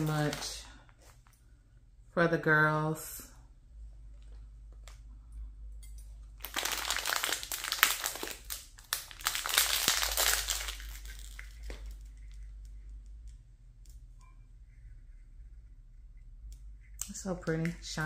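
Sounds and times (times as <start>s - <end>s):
plastic bag crinkling: 0.0s - 1.3s, 6.3s - 12.6s.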